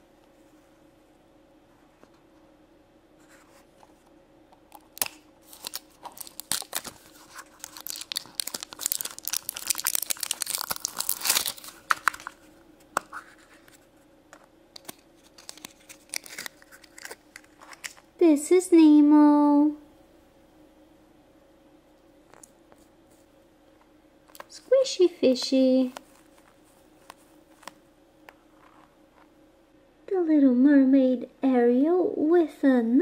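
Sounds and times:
plastic wrap crackling and tearing: 4.7s - 13.2s, 14.8s - 18.0s, 25.4s - 27.8s.

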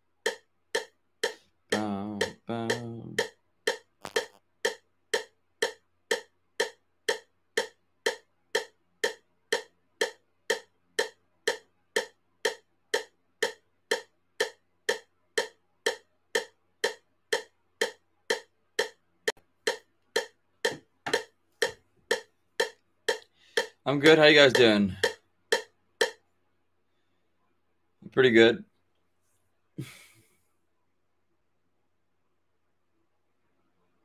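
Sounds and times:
metronome clicking: 0.2s - 26.2s.

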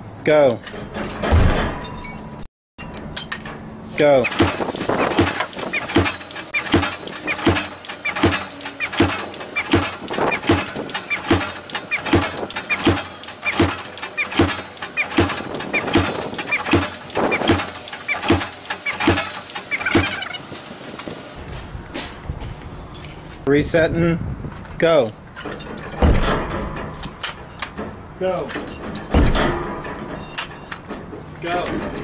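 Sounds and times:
impactor striking plastic panel: 4.3s - 20.2s.

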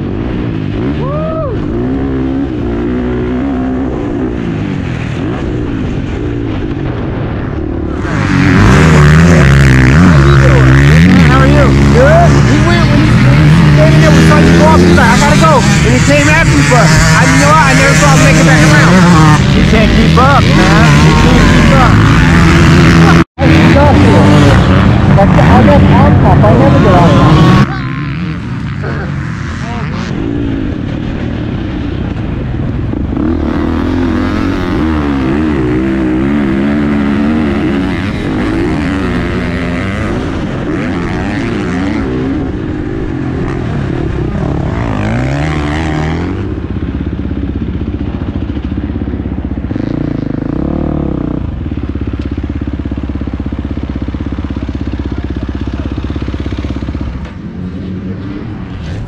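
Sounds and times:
dirt bike engine revving: 0.0s - 59.0s.

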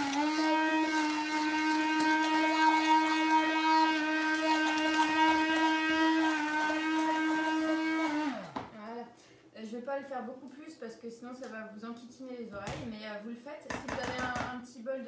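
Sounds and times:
immersion blender motor whining: 0.0s - 8.8s.

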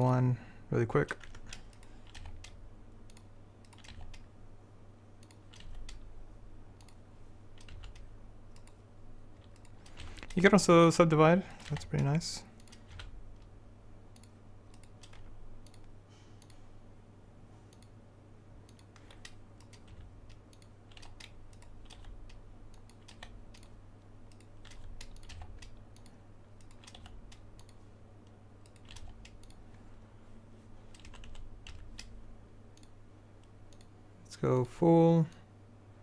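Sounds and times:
low electrical hum: 0.0s - 36.0s
keyboard and mouse clicks: 1.0s - 4.3s, 5.2s - 6.1s, 6.8s - 7.0s, 7.6s - 8.8s, 9.4s - 10.5s, 11.5s - 13.5s, 14.1s - 16.6s, 18.7s - 29.8s, 30.9s - 34.0s.

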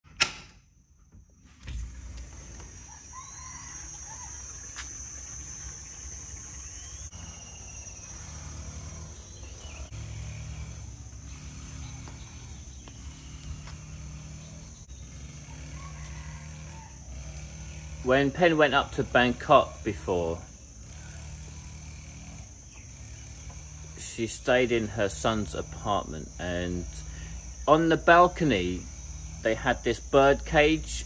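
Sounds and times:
sharp click: 0.1s - 0.6s
insect drone: 0.6s - 31.0s
bird chirps: 3.2s - 9.9s.

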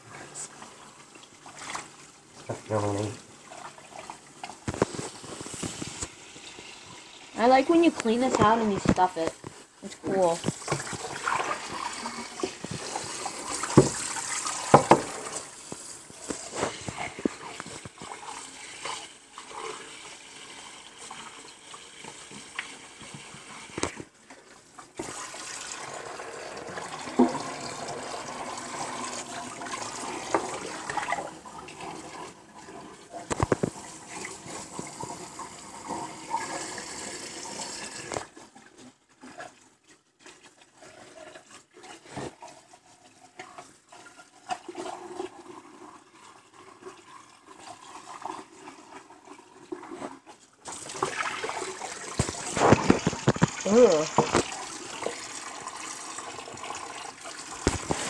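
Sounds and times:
water trickling: 0.0s - 58.0s
tap water splashing into sink: 10.2s - 19.7s, 21.0s - 38.4s, 49.8s - 58.0s.

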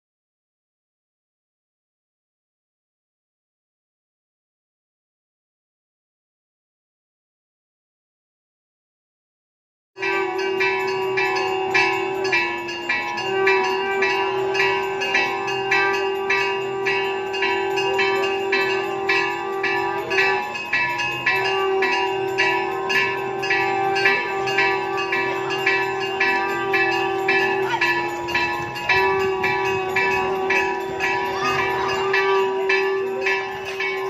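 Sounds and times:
temple bells ringing rapidly: 10.0s - 34.0s.

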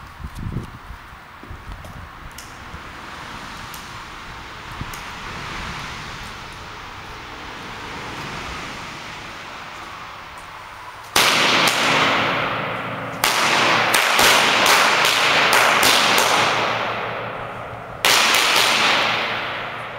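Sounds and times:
firecrackers banging: 1.6s - 19.9s
bang echo: 11.1s - 19.9s.

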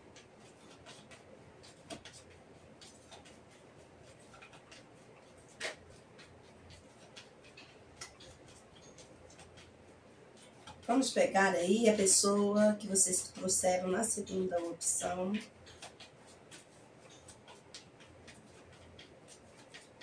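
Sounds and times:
cards shuffling: 0.2s - 11.0s, 15.3s - 20.0s.

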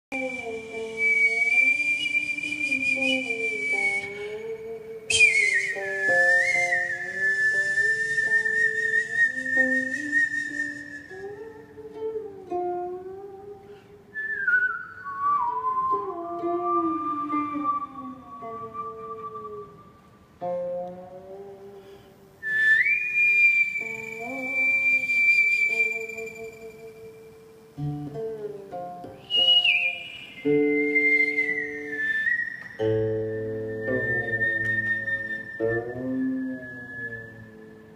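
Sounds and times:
mouth whistling: 0.1s - 11.3s, 14.2s - 20.0s, 22.4s - 27.3s, 29.2s - 37.9s
flute held notes: 5.1s - 11.4s, 29.2s - 37.9s
zither low sliding notes: 25.9s - 37.9s.

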